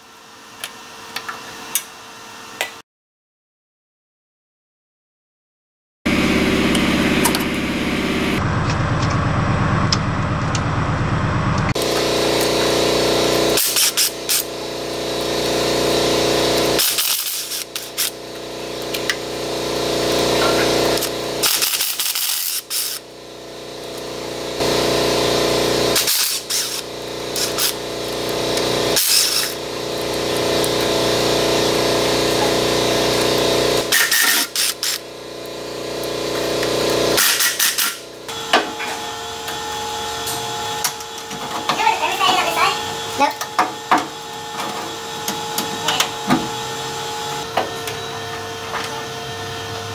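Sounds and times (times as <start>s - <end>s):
power ratchet spinning bolts: 13.6s - 14.5s, 16.4s - 18.2s, 20.1s - 23.1s, 25.9s - 31.1s, 32.0s - 38.1s.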